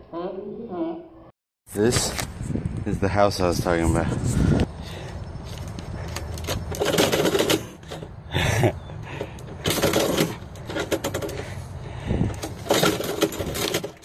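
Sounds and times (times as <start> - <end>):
metal mail slot flap rattling: 6.3 - 8.1.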